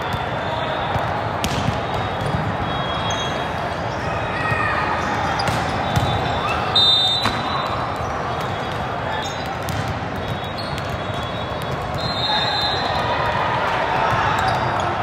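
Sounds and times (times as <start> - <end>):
many voices: 0.0 - 15.0
volleyball struck and bouncing: 1.0 - 2.5, 5.4 - 6.3, 7.2 - 7.7, 9.4 - 12.0
shoes squeaking on court: 5.3 - 11.7.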